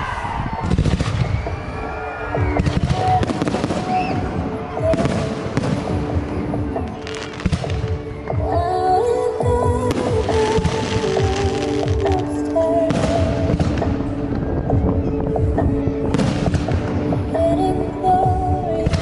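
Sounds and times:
fireworks booming and crackling: 0:00.6 - 0:01.7, 0:02.4 - 0:08.7, 0:09.8 - 0:17.5.

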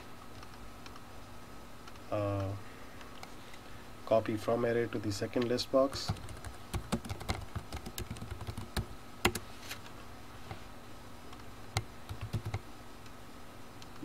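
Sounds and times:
computer keyboard typing: 0:05.9 - 0:09.4, 0:11.7 - 0:12.6.

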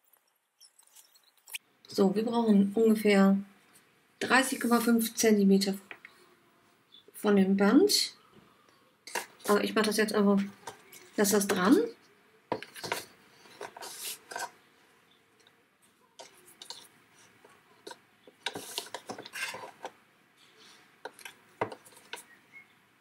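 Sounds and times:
paper rustling: 0:12.5 - 0:14.6, 0:16.2 - 0:19.9.

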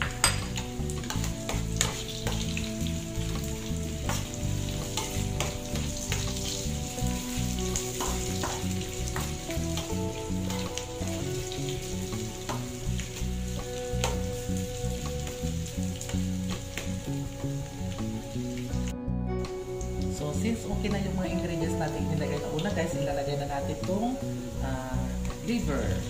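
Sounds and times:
food sizzling in hot oil: 0:00.0 - 0:26.0
metal spoon scraping a pan: 0:00.2 - 0:02.5, 0:04.0 - 0:09.3.

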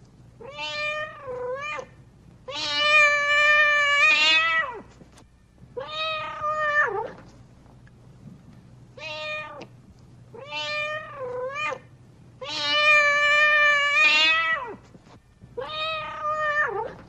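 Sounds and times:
cat meowing: 0:00.4 - 0:01.9, 0:02.5 - 0:04.8, 0:05.8 - 0:07.2, 0:09.0 - 0:09.7, 0:10.4 - 0:14.8, 0:15.6 - 0:17.0.

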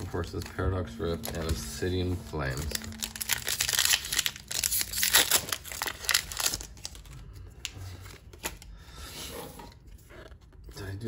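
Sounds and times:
cards rustling and clicking: 0:00.0 - 0:08.8
foil wrapper tearing and crinkling: 0:02.4 - 0:07.2.

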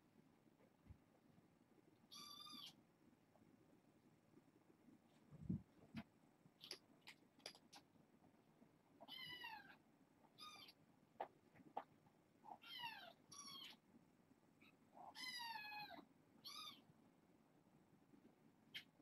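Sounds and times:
kittens meowing: 0:02.1 - 0:02.8, 0:09.0 - 0:09.8, 0:10.4 - 0:10.8, 0:12.5 - 0:13.8, 0:14.6 - 0:16.8
faint clicks: 0:06.6 - 0:07.9.

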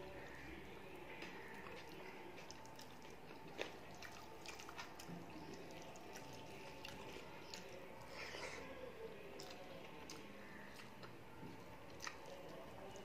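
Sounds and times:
chewing mouth sounds: 0:01.2 - 0:07.8, 0:09.4 - 0:13.0.

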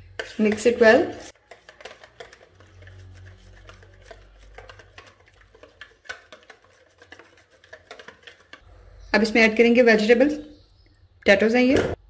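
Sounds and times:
wire whisk scraping a bowl: 0:00.2 - 0:08.6.

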